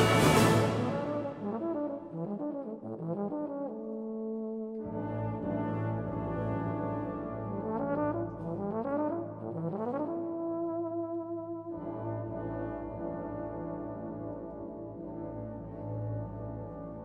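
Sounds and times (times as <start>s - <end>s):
euphonium melody: 0.0s - 2.7s
wind band low chords: 0.0s - 17.0s.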